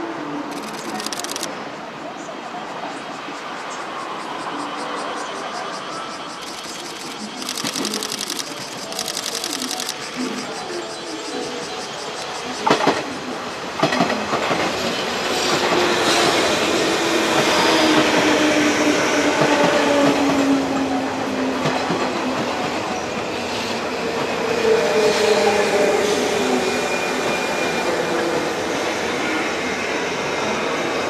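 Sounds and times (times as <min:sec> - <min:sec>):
train rumble: 0:02.8 - 0:31.0
train wheels clacking: 0:06.2 - 0:10.3.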